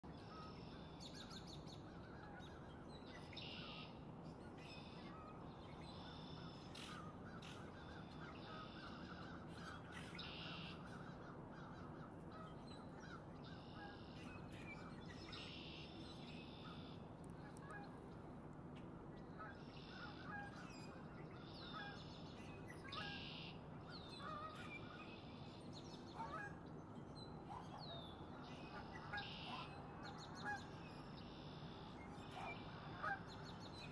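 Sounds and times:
faint bird calls: 22.8s - 26.6s, 27.4s - 33.9s.

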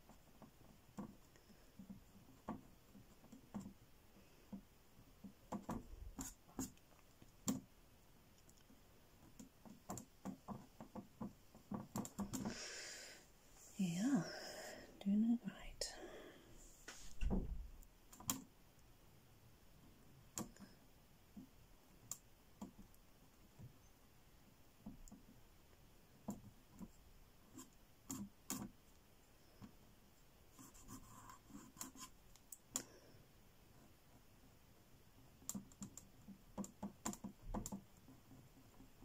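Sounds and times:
paintbrush dabbing on board: 0.0s - 7.7s.

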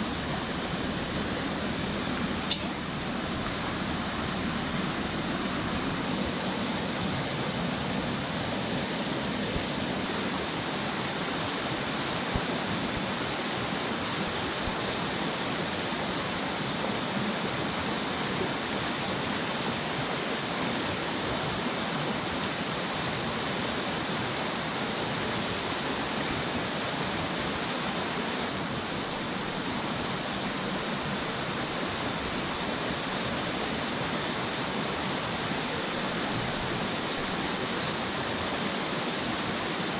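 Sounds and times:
stream rushing over rocks: 0.0s - 39.9s.

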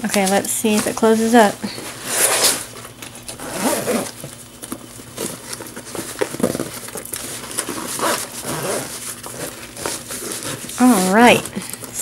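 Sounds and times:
nylon bag rustling and scraping: 0.7s - 4.2s, 5.1s - 11.5s
bag zipper closing: 3.3s - 4.2s, 7.7s - 11.2s.

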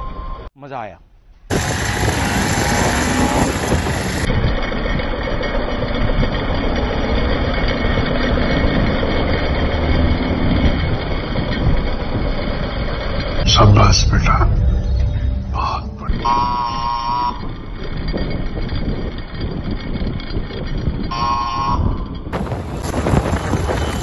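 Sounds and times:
wind noise on microphone: 1.5s - 5.4s, 14.2s - 24.0s.

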